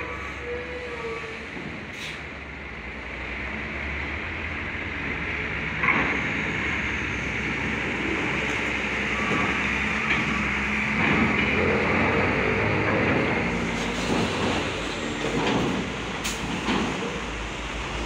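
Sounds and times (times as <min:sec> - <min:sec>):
diesel truck engine running: 0:01.4 - 0:18.0
tyres rumbling over steel grating: 0:05.6 - 0:18.0.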